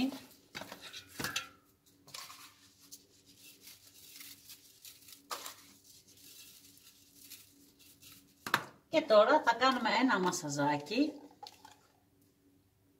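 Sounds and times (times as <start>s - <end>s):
seasoning sprinkled onto meat: 2.2s - 8.4s.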